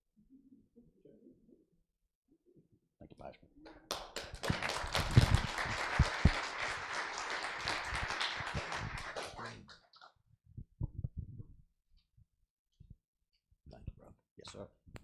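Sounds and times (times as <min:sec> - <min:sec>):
crowd applauding: 0:03.9 - 0:09.8.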